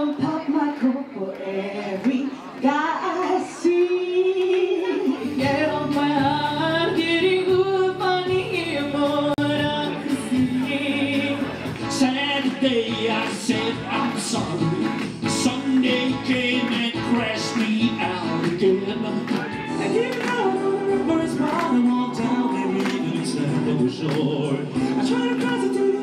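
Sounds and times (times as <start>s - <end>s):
woman singing karaoke: 0.0s - 12.0s, 19.2s - 23.6s, 24.2s - 26.0s
backing track music: 3.7s - 26.0s
man's voice: 8.3s - 26.0s.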